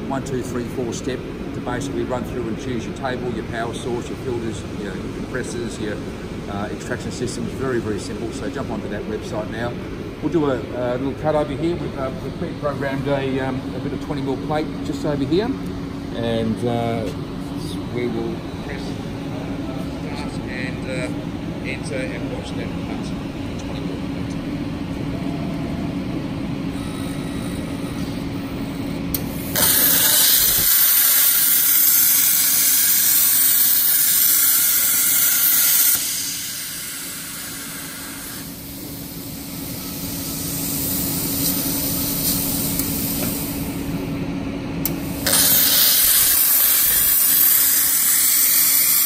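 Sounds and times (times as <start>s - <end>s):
low machine hum: 0.0s - 49.0s
plasma torch hissing: 29.1s - 43.8s, 44.8s - 49.0s.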